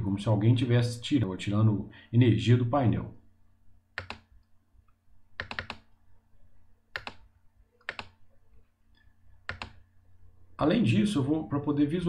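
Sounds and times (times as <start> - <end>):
computer mouse clicks: 4.0 - 5.9, 6.9 - 8.2, 9.0 - 9.8.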